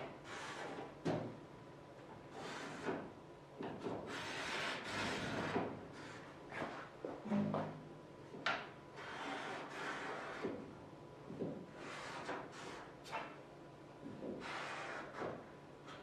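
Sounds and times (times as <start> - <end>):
short low tone: 7.2 - 8.0.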